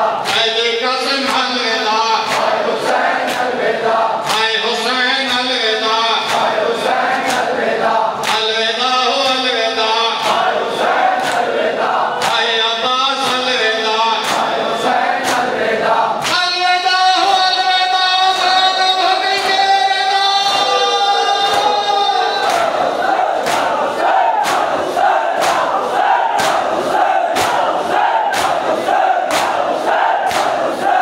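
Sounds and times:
men chanting in chorus: 0.0 - 31.0
hands slapping chests: 2.3 - 3.6, 6.3 - 7.6, 8.2 - 8.4, 10.2 - 11.6, 12.2 - 12.4, 14.2 - 14.5, 15.2 - 15.6, 22.4 - 31.0.

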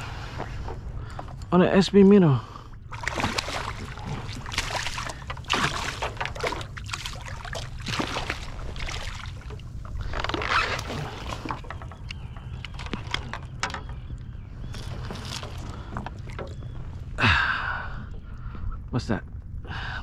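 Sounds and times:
steady low rumble: 0.0 - 20.0
fish splashing at surface: 2.9 - 9.6.

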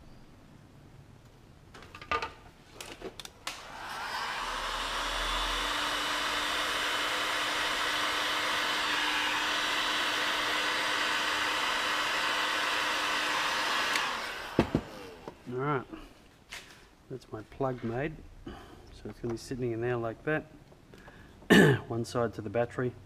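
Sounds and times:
heat gun blowing hot air: 3.5 - 15.4.

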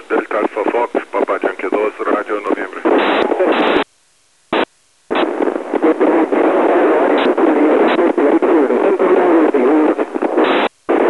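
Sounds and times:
garbled radio voice: 0.0 - 3.8, 5.8 - 10.0
radio static hiss: 0.0 - 11.0.

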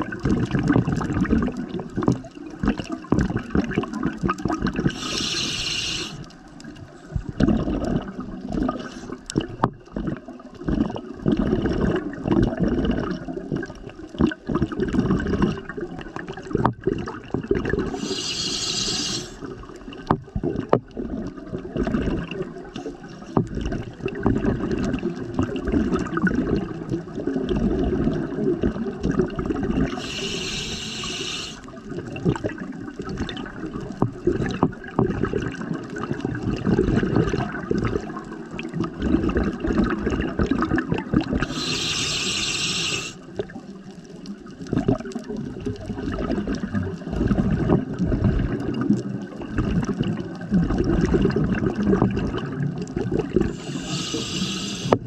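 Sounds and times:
bubbling exhaled air: 0.0 - 19.7, 20.4 - 43.6, 44.6 - 55.0
regulator hissing inhalations: 4.9 - 6.3, 17.9 - 19.5, 29.9 - 31.7, 41.4 - 43.2, 53.5 - 55.0.

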